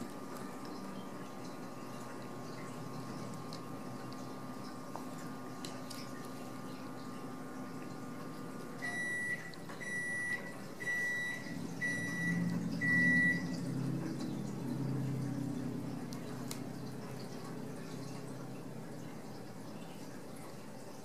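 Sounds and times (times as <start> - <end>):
appliance hum: 0.0 - 21.0
high-pitched appliance beeps: 8.8 - 13.7.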